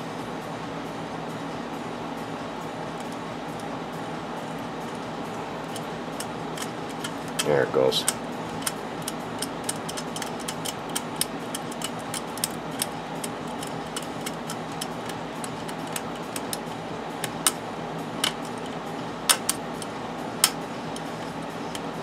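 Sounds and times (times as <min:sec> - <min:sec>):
steady hum: 0:00.0 - 0:22.0
screwdriver ticking on metal nut: 0:05.7 - 0:17.6.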